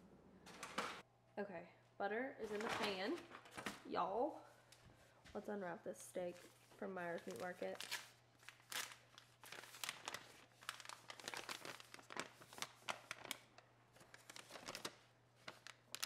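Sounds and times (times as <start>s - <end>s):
stiff paper crinkling: 6.3s - 16.0s.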